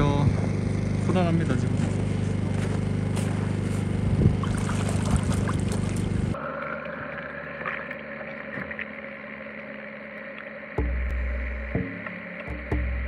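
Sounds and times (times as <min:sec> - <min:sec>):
low motor hum: 0:00.0 - 0:13.0
motor whine: 0:00.0 - 0:13.0
wind noise: 0:04.0 - 0:06.1.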